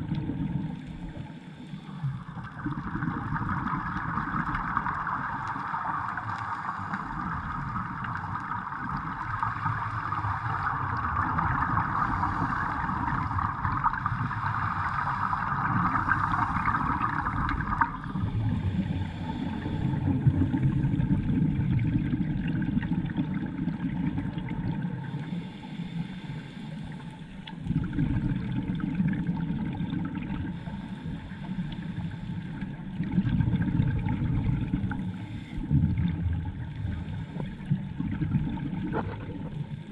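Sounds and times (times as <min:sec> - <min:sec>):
underwater bubbles gurgling: 0:00.0 - 0:39.9
steady hiss: 0:25.0 - 0:27.3.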